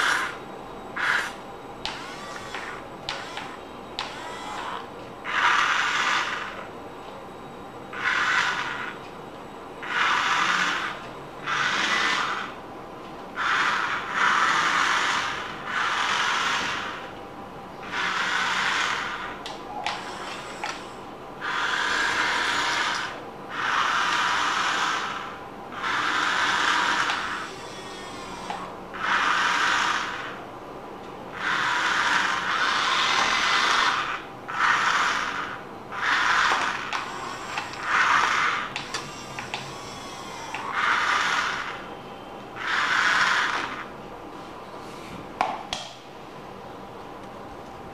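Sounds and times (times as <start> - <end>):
small electric motor whirring: 0.0 - 0.4, 1.0 - 6.6, 7.9 - 9.0, 9.8 - 12.6, 13.4 - 17.0, 17.8 - 30.4, 31.4 - 41.8, 42.6 - 43.9.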